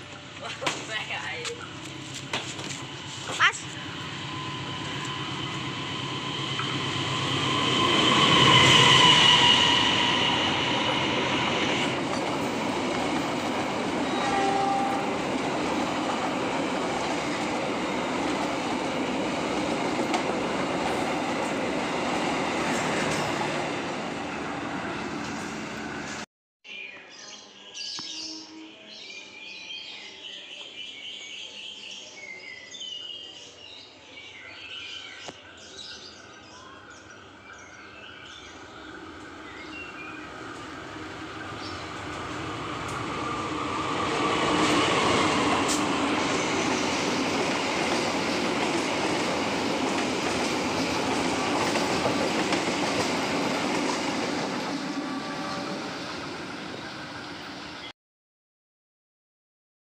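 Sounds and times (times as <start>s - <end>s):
passing train rumble: 0.0s - 26.3s, 36.5s - 57.9s.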